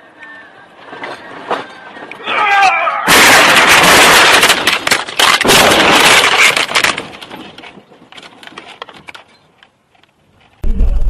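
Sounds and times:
vehicles crashing and crunching: 3.0 - 7.8.

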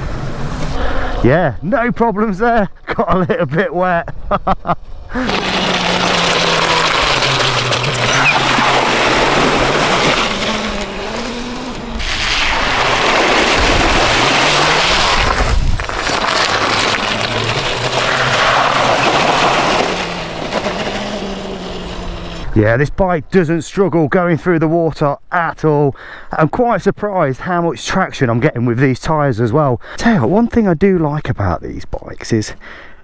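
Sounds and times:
water splashing: 5.2 - 21.6
electric motor hum: 5.2 - 22.6
tyres rushing on gravel: 5.2 - 22.6.

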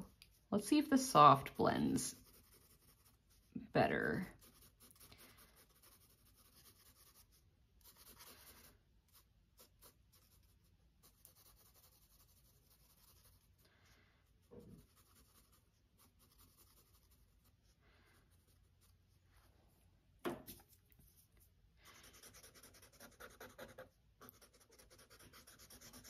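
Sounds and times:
charcoal pencil scratching paper: 0.0 - 19.2, 20.5 - 26.0
soft thump: 20.2 - 20.6.

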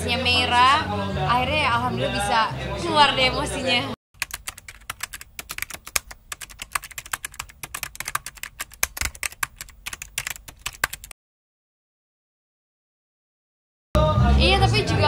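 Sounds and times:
keyboard typing clicks: 4.2 - 11.1.

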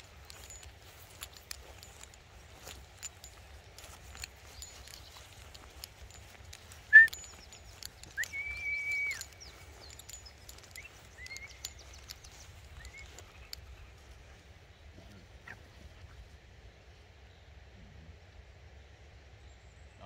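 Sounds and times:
dog whining and yelping: 6.7 - 13.3.

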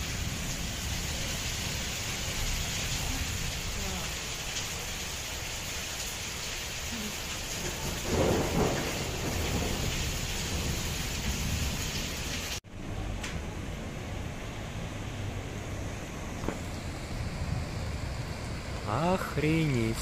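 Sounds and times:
heavy rain pouring: 0.0 - 20.0
thunder rumbling: 7.0 - 19.4.

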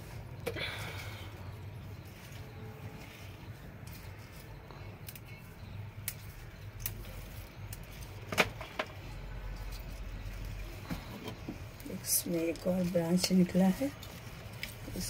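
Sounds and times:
clicks and snaps of plant cuttings: 5.0 - 5.4, 6.0 - 8.9.

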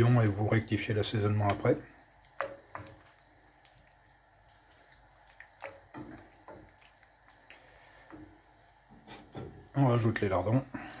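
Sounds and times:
spoon stirring wet sauce: 0.3 - 11.0.

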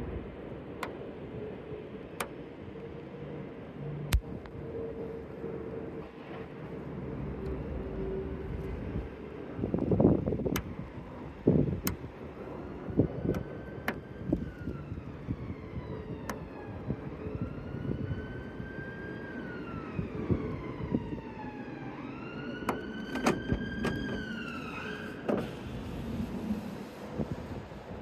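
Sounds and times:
street noise: 0.0 - 28.0
emergency vehicle siren wailing: 1.2 - 28.0.

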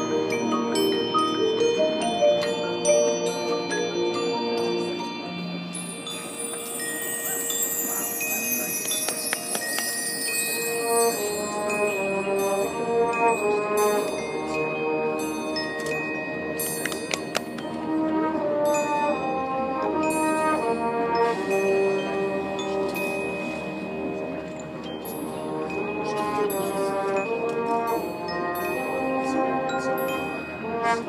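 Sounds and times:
ringing mallet percussion: 0.0 - 31.0
brass chords: 10.5 - 16.6, 17.7 - 24.5, 25.3 - 31.0.

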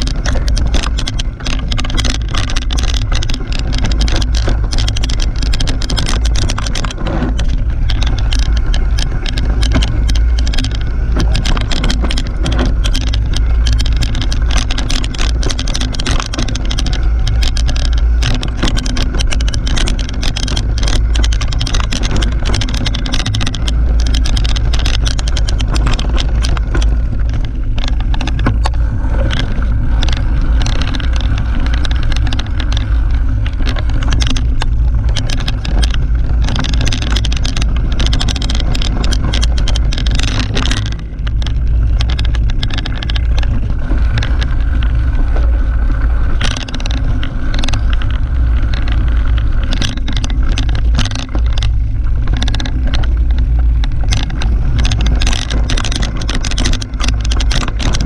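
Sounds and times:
bike clicking and rattling: 0.0 - 58.0
low rumble of tyres and air: 0.0 - 58.0.

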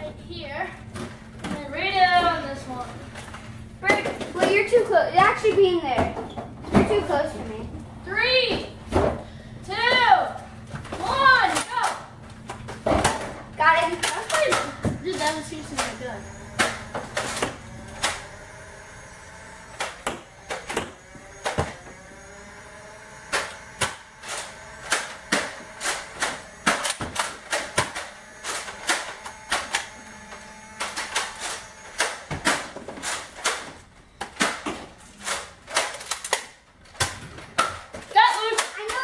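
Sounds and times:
foam-dart blasters firing and cocking: 14.0 - 39.0.

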